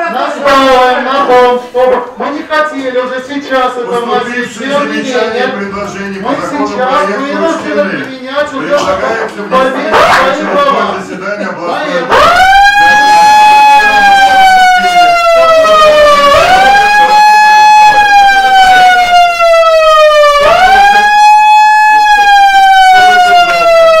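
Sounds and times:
megaphone electronic siren: 0:09.9 - 0:10.6, 0:12.1 - 0:24.0.

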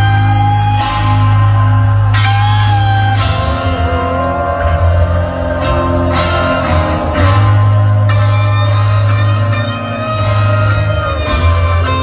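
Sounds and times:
loud rock band: 0:00.0 - 0:12.0.

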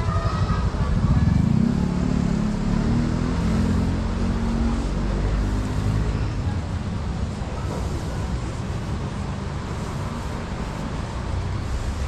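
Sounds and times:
small motorcycle engine running: 0:00.0 - 0:06.7.

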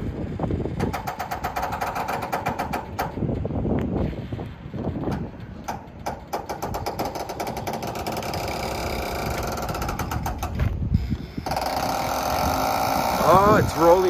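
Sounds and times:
fast metallic rattling clicks: 0:00.6 - 0:03.6, 0:05.0 - 0:10.6.

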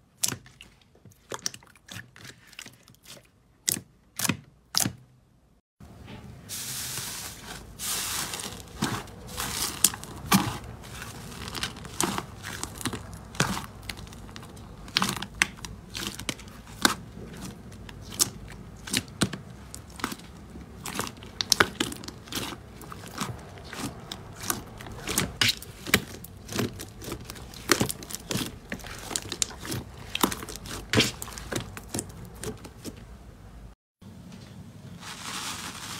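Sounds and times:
slime squishing: 0:00.0 - 0:05.0, 0:06.7 - 0:33.3
slime popping and crackling: 0:08.1 - 0:32.9.

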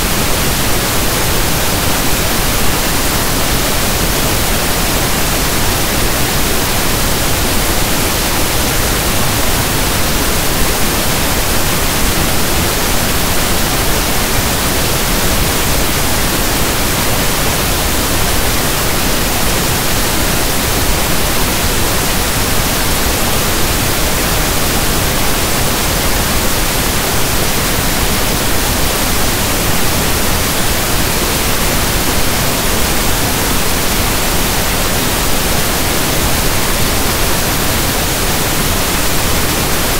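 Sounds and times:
pink noise hiss: 0:00.0 - 0:39.9.

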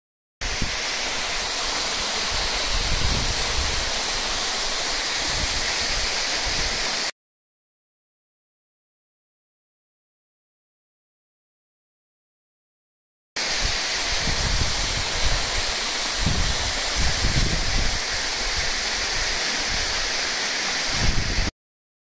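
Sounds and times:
waterfall rushing: 0:00.4 - 0:07.1, 0:13.4 - 0:21.5.

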